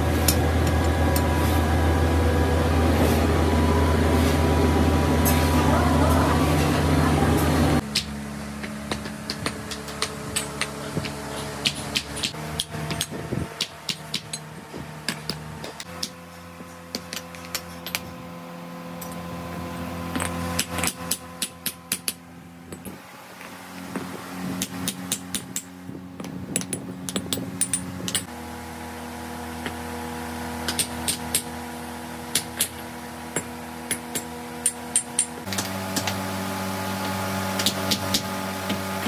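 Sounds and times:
steady machine hum: 0:00.0 - 0:39.0
hand hammers tapping metal castings: 0:07.9 - 0:14.5, 0:24.6 - 0:28.3, 0:32.3 - 0:36.1.

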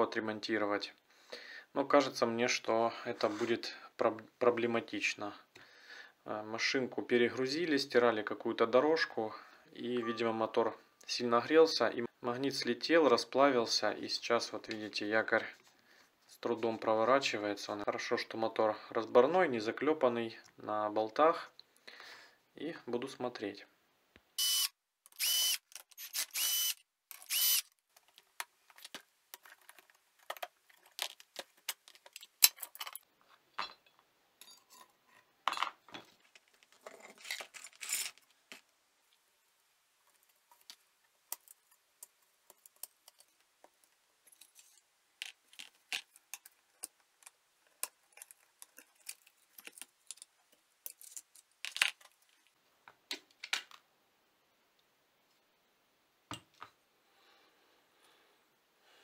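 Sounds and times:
power screwdriver whirring: 0:24.4 - 0:27.7
metal parts clinking and scraping: 0:28.8 - 0:33.1, 0:36.3 - 0:38.3, 0:44.3 - 0:46.9, 0:47.7 - 0:52.1.

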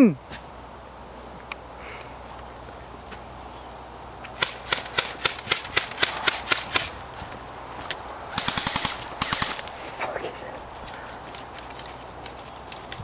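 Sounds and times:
airsoft rifle shots: 0:04.4 - 0:07.0, 0:08.3 - 0:09.7.

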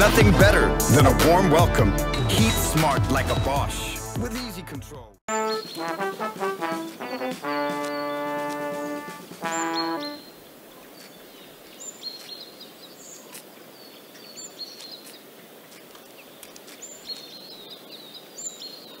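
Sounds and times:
small birds chirping: 0:05.3 - 0:19.0
light clicks: 0:14.2 - 0:17.3.

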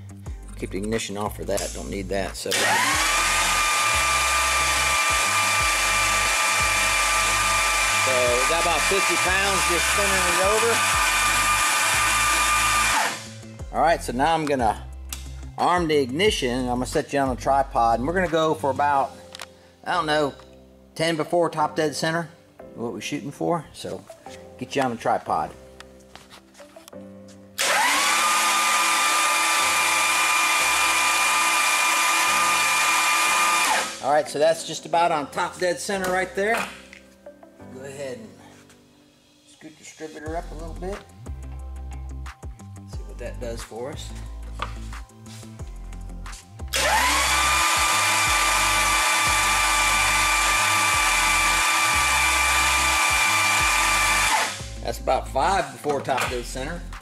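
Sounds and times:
starter motor whining: 0:02.5 - 0:13.4, 0:27.6 - 0:34.0, 0:46.7 - 0:54.6.

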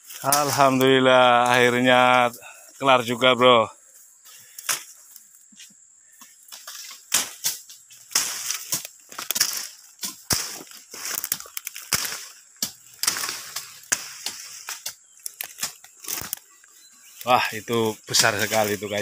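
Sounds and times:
dry brush crunching and rustling: 0:00.0 - 0:02.4, 0:06.3 - 0:19.0
leaves crackling: 0:00.0 - 0:03.6, 0:06.2 - 0:19.0
twigs snapping: 0:00.1 - 0:00.9, 0:04.4 - 0:05.3, 0:06.3 - 0:19.0.

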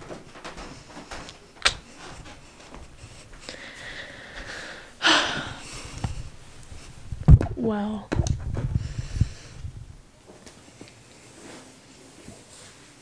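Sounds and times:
breathy exhale: 0:03.5 - 0:06.1.

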